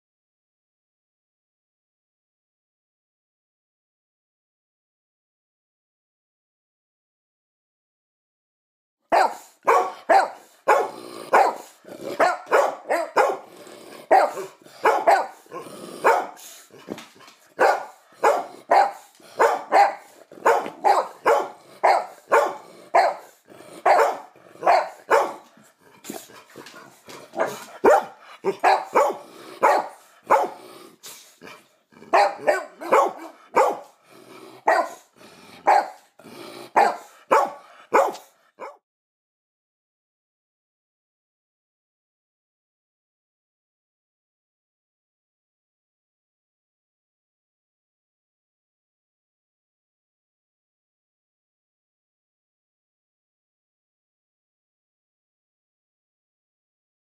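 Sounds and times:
dogs barking: 0:09.1 - 0:30.8, 0:31.4 - 0:38.8.

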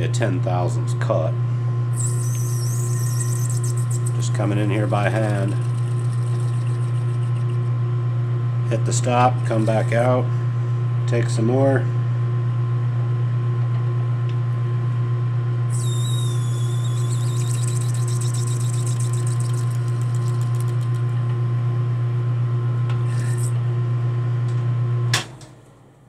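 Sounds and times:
high squeal with chatter: 0:02.0 - 0:04.0, 0:15.7 - 0:18.7
lathe humming: 0:02.0 - 0:08.1.

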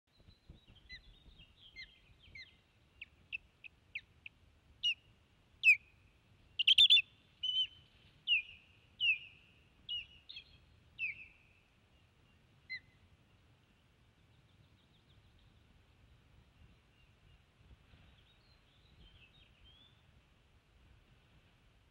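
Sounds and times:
osprey alarm calls: 0:06.6 - 0:09.3.

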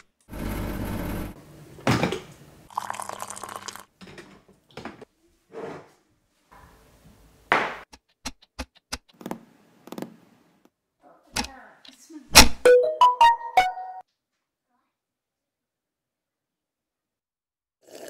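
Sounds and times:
liquid pouring and dripping: 0:02.7 - 0:03.9.

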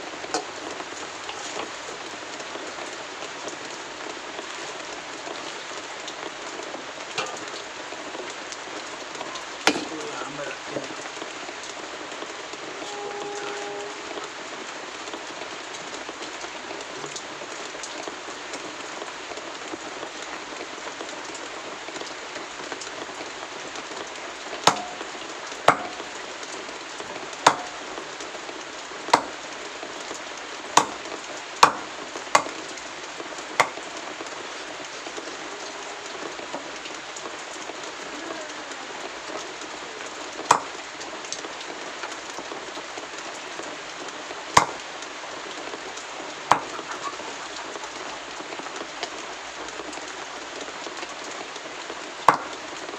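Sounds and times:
knife chopping on wooden block: 0:24.7 - 0:25.0, 0:25.7 - 0:26.0, 0:27.5 - 0:27.8, 0:29.2 - 0:29.4, 0:30.8 - 0:31.0, 0:31.6 - 0:32.6, 0:44.6 - 0:44.8, 0:46.5 - 0:46.7.

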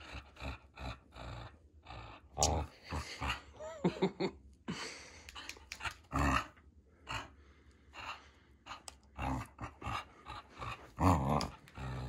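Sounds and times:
dog play-growling: 0:00.0 - 0:03.4, 0:08.7 - 0:12.0.

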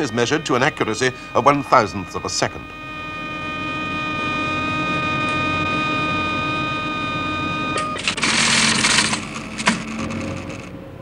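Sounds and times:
steady electronic tone: 0:00.0 - 0:11.0
mechanical clicks: 0:07.8 - 0:10.7
teleprinter rattling: 0:07.8 - 0:10.7.

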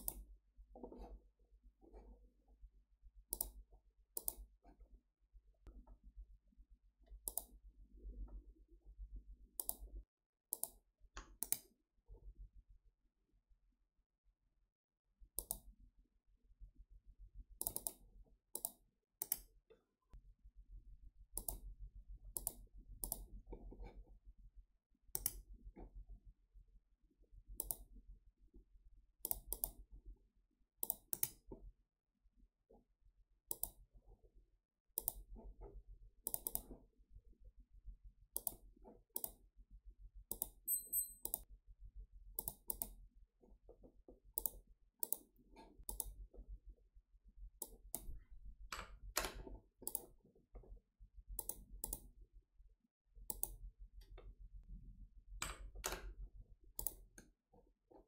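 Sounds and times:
computer mouse clicking: 0:00.0 - 0:01.2, 0:03.3 - 0:04.6, 0:07.1 - 0:07.6, 0:09.6 - 0:09.9, 0:10.5 - 0:11.8, 0:15.4 - 0:15.7, 0:17.6 - 0:19.6, 0:21.4 - 0:21.7, 0:22.3 - 0:24.0, 0:25.1 - 0:25.5, 0:27.6 - 0:27.9, 0:29.2 - 0:29.8, 0:30.8 - 0:31.5, 0:33.5 - 0:33.8, 0:35.0 - 0:36.9, 0:38.3 - 0:39.4, 0:40.3 - 0:40.6, 0:42.4 - 0:43.0, 0:44.3 - 0:46.4, 0:47.6 - 0:50.2, 0:51.3 - 0:52.1, 0:53.2 - 0:54.2, 0:56.8 - 0:57.3.

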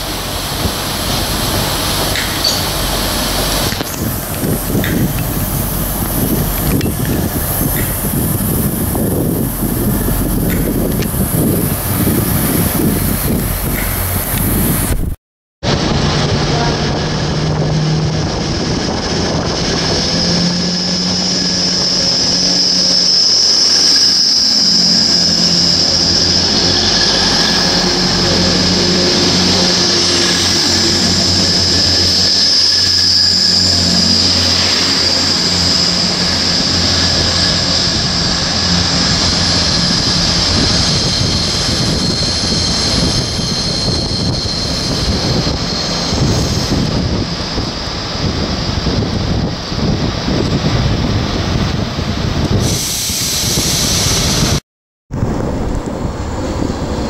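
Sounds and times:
wheels ringing on rails: 0:00.0 - 0:14.6, 0:17.7 - 0:52.5
diesel train engine: 0:00.0 - 0:57.0.

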